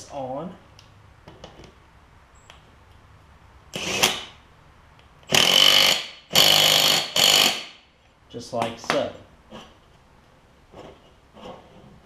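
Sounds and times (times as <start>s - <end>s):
handheld power tool bursts: 3.7s - 4.4s, 5.2s - 7.8s.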